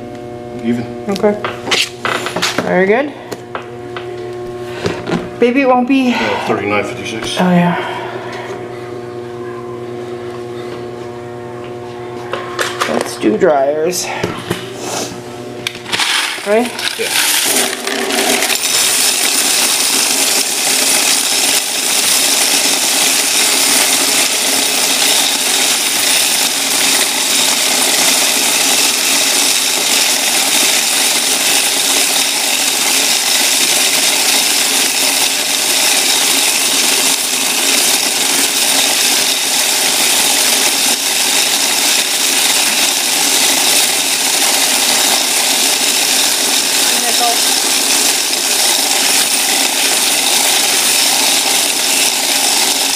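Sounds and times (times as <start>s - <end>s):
faint motor hum: 0.0s - 52.9s
coins rattling in counting machine: 15.8s - 52.9s.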